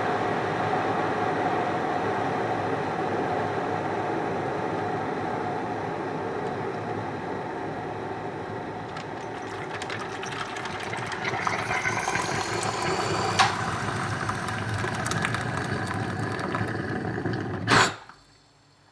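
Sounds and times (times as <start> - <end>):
water boiling with rumble: 8.6 - 17.8
hot water pouring into mug: 8.8 - 17.9.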